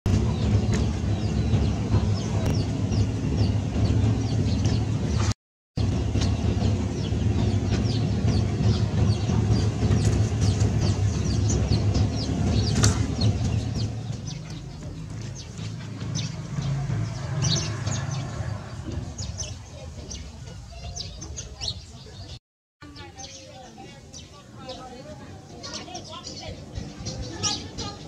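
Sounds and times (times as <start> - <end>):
steady low hum: 0.1 - 17.1
chicks peeping: 0.1 - 22.4
chickens clucking: 6.2 - 22.4.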